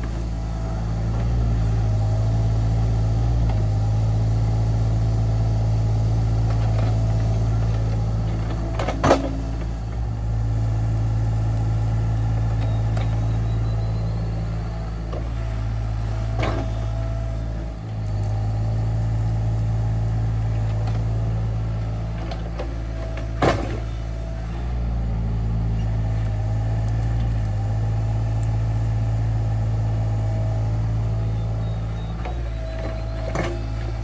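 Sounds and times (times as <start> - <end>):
diesel engine running: 0.0 - 34.0
hydraulic whine: 11.4 - 25.0, 29.6 - 34.0.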